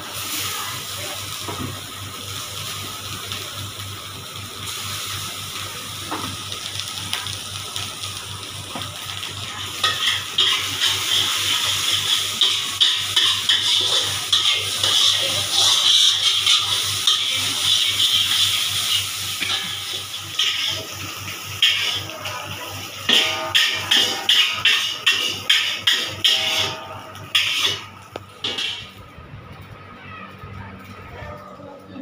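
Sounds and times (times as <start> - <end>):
rice sizzling in a wok: 0.0 - 29.1
metal spatula scraping a wok: 9.8 - 20.9, 21.6 - 22.4, 23.1 - 28.9.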